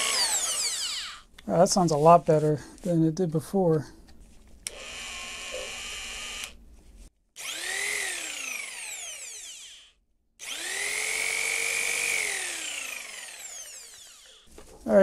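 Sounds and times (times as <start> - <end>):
jigsaw motor whining: 0.0 - 1.3, 4.7 - 6.6, 7.4 - 14.5.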